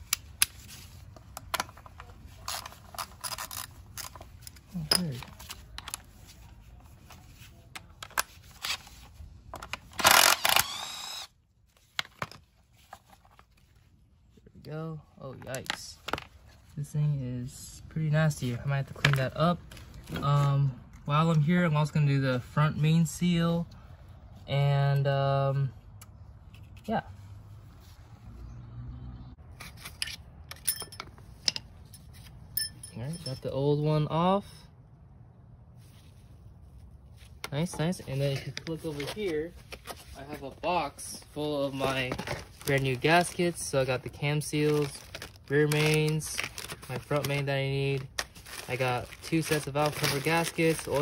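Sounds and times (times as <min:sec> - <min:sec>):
impact wrench hammering and whirring: 0:09.9 - 0:11.4
light metal clicks and clinks: 0:32.5 - 0:33.6.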